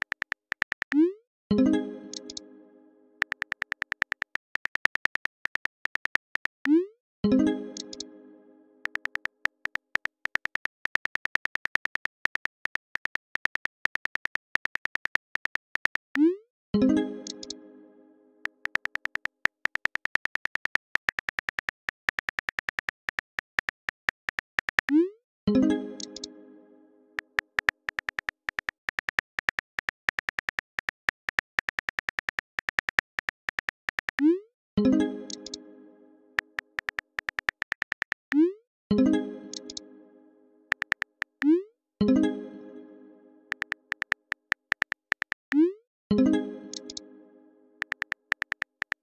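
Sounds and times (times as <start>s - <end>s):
phone keyboard typing clicks: 0.0s - 1.0s, 2.1s - 2.4s, 3.2s - 6.8s, 8.8s - 16.2s, 17.3s - 17.6s, 18.4s - 25.0s, 26.0s - 26.3s, 27.2s - 34.3s, 35.3s - 35.6s, 36.4s - 38.4s, 39.5s - 39.8s, 40.7s - 41.5s, 43.5s - 45.6s, 46.7s - 47.0s, 47.8s - 49.0s.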